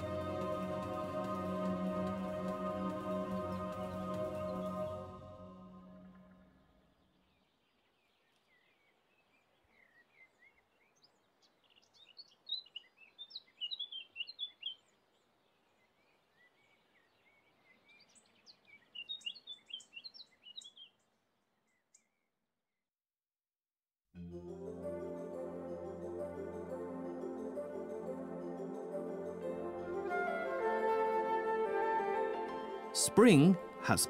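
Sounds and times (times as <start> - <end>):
outdoor background hiss: 0.0 - 21.8
small birds chirping: 6.4 - 22.4.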